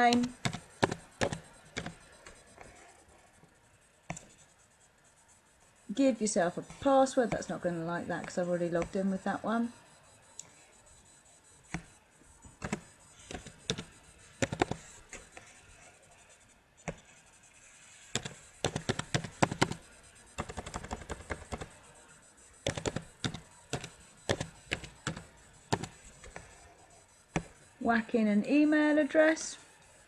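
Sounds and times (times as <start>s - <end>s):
keyboard typing: 0.0s - 2.9s, 6.0s - 15.6s, 18.0s - 27.6s.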